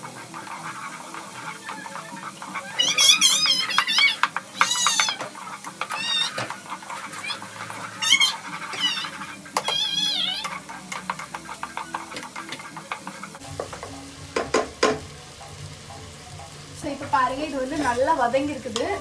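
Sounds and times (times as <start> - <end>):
spatula scraping a pot: 0.0 - 13.4
faint sizzling: 0.0 - 19.0.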